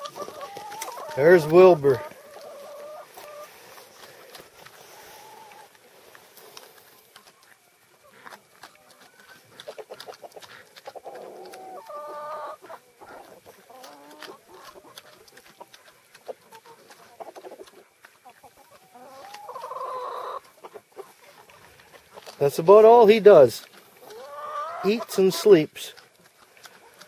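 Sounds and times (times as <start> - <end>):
pig crunching food pellets: 0.0 - 27.0
bird clucking call: 24.0 - 25.5.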